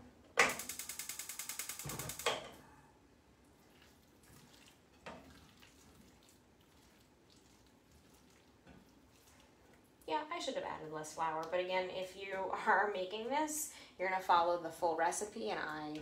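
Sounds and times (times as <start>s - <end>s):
gas stove igniter clicking: 0.4s - 2.4s.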